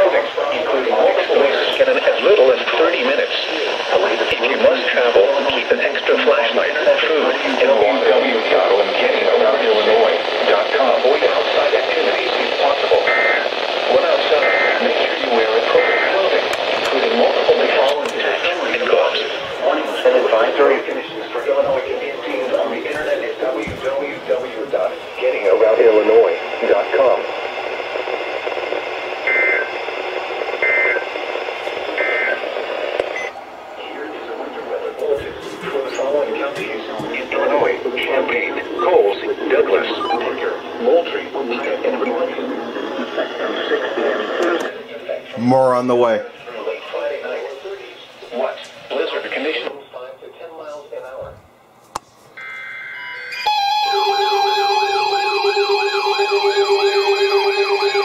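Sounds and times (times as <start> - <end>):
broadcast hiss: 0.0 - 52.8
weather alert radio alarms: 11.4 - 19.4, 26.2 - 34.4, 35.6 - 42.8, 52.4 - 58.0
two-note electronic beep: 40.0 - 40.3
up-and-down siren wail: 53.4 - 58.0.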